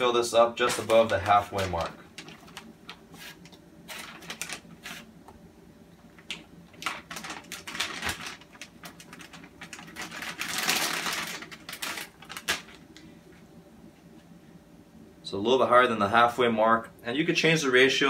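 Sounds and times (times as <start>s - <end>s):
plastic bag crinkling: 0.6s - 5.1s, 6.2s - 13.0s.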